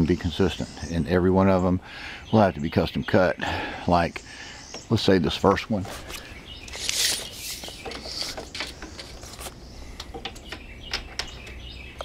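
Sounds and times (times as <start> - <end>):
tape measure hiss: 5.8 - 9.6.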